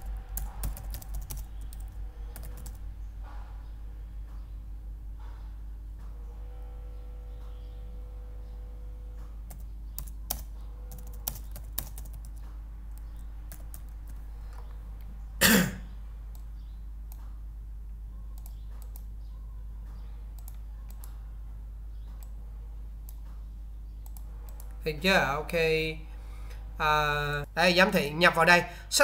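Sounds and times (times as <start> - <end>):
keyboard keystrokes and clicks: 0.0 - 2.8, 9.4 - 14.8, 18.3 - 19.1, 20.3 - 21.2, 24.0 - 24.8
steady low hum: 0.0 - 29.0
person coughing: 15.4 - 15.9.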